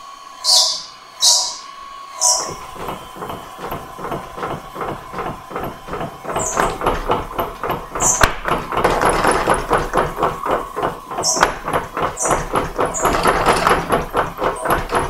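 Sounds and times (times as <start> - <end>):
drive whine: 0.0 - 15.0
power hammer blows: 2.3 - 15.0.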